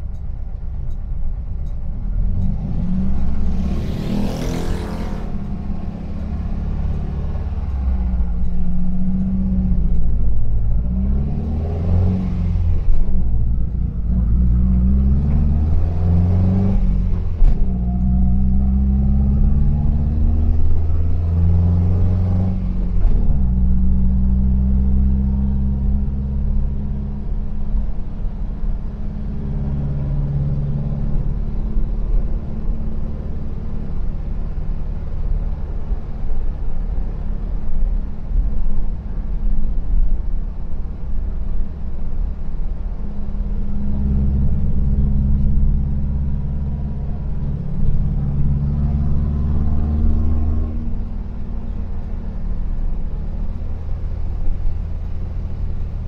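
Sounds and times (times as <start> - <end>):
road noise: 0.0 - 56.0
van engine running: 12.0 - 56.0.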